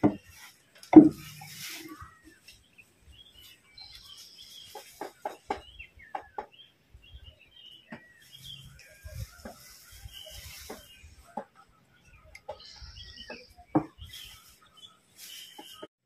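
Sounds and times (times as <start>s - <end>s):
birds chirping: 0.0s - 15.9s
chickens clucking: 4.1s - 6.6s, 7.9s - 15.9s.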